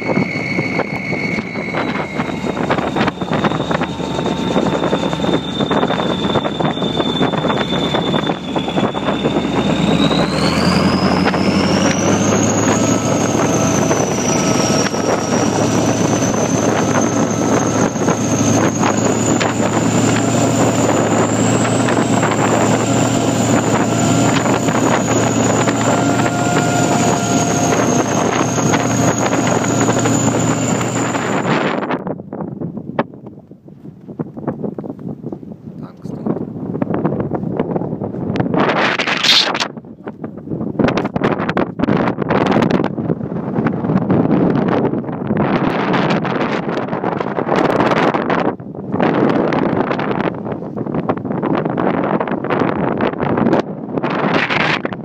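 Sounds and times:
high engine whine: 0.0 - 34.1
vehicle engine drone: 0.0 - 55.0.

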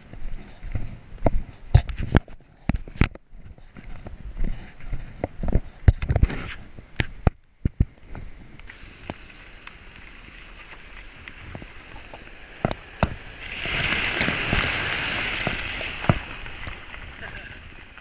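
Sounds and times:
car tyres rolling on gravel: 3.6 - 18.0
car splashing through stream: 8.8 - 18.0
stones striking car: 10.4 - 18.0.

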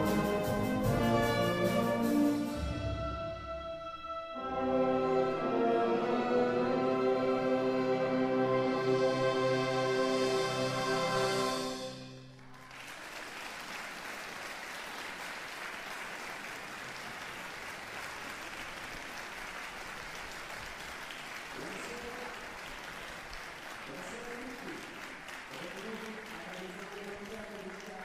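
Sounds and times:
wind band held chord: 0.0 - 12.3
audience applauding: 12.3 - 28.0.

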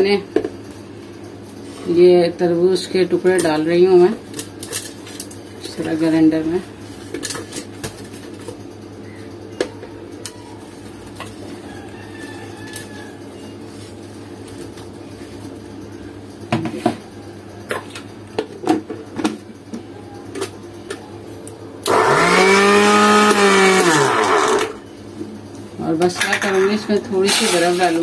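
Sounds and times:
blender motor running: 21.8 - 24.8.

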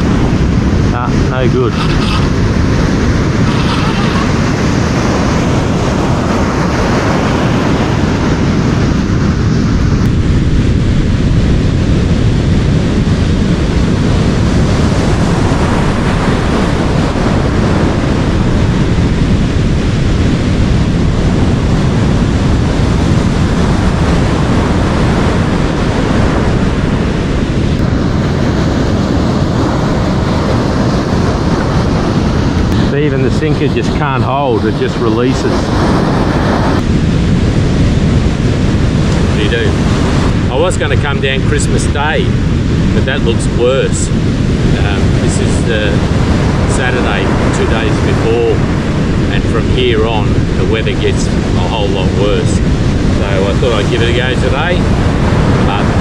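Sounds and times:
surf washing on a beach: 0.0 - 56.0
wind buffeting microphone: 0.0 - 56.0.

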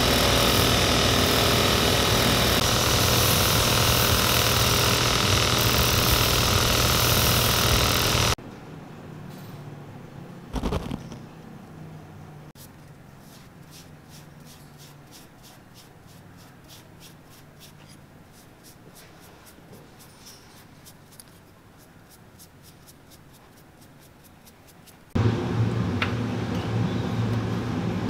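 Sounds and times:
loud steady hum: 0.0 - 8.4, 25.2 - 28.0
paintbrush scratchy strokes: 12.6 - 25.2.

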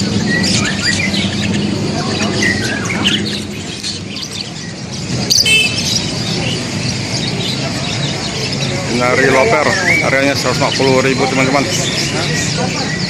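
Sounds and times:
birds chirping and calling: 0.0 - 13.0
loud sharp bird call: 0.1 - 10.1.

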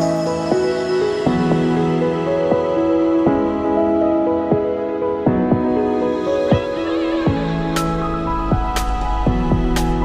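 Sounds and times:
background music with beat: 4.4 - 10.0.

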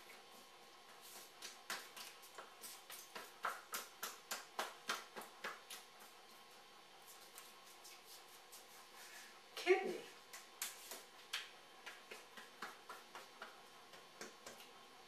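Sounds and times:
fingertips tapping on body: 0.9 - 6.1, 10.3 - 14.7.

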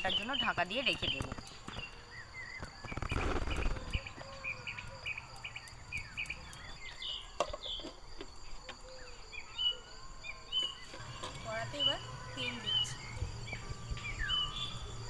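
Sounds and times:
birds chirping: 0.0 - 15.0
insect drone: 0.0 - 15.0.

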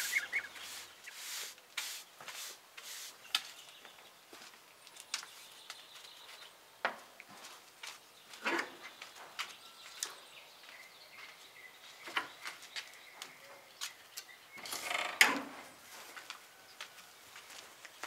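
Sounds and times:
faint bird chirps: 0.0 - 1.3
footsteps on wooden boards: 1.8 - 11.4.

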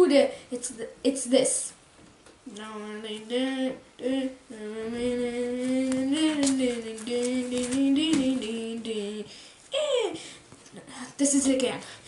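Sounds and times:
child singing wordless tune: 2.4 - 10.2.

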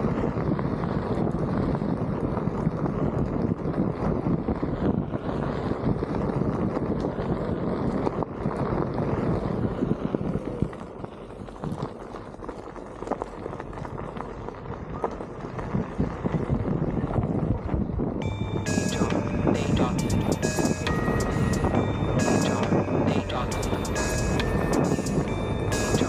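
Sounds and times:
tyre rumbling on dirt road: 0.0 - 18.8
wind buffeting microphone: 0.0 - 26.0.

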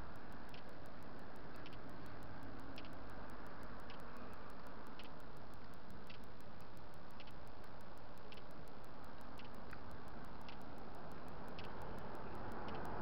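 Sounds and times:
fast high-pitched ticking: 0.0 - 13.0
light click with footsteps: 0.0 - 13.0
road noise: 0.0 - 13.0
vehicle passing: 10.7 - 13.0.

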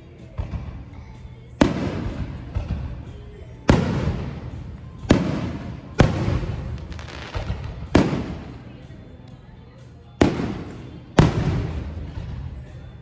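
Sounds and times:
fireworks booming with echo: 1.6 - 9.0, 10.2 - 13.0.

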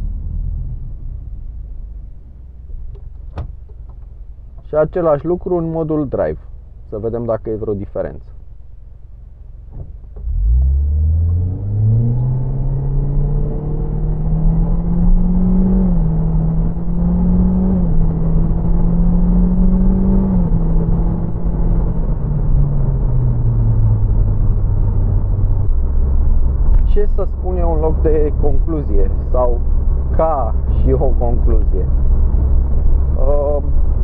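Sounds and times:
car engine accelerating: 8.7 - 34.0.

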